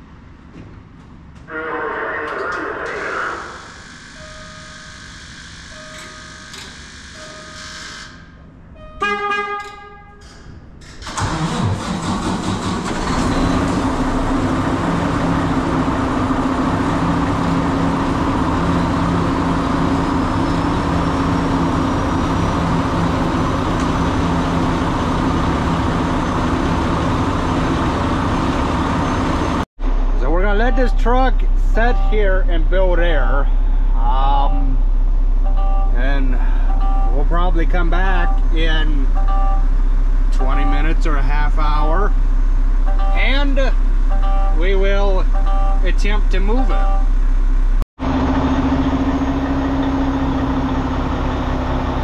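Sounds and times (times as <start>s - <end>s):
horn-like tone: 8.8s - 10.2s, 30.2s - 32.6s, 42.8s - 47.2s
truck engine starting and idling: 9.5s - 52.0s
short beeps: 30.6s - 32.5s, 34.1s - 37.3s, 38.1s - 39.7s, 42.9s - 47.2s.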